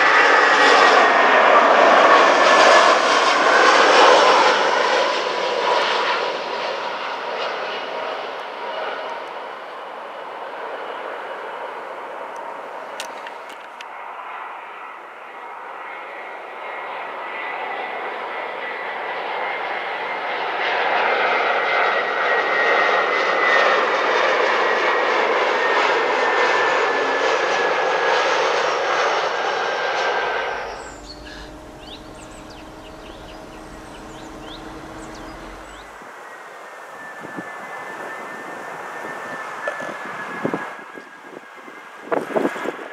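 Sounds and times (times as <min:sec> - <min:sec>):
distant airliner hum: 0:00.0 - 0:09.2, 0:29.4 - 0:40.9
jet airliner engine roar: 0:00.0 - 0:42.9
thin whine falling in pitch: 0:30.5 - 0:36.0.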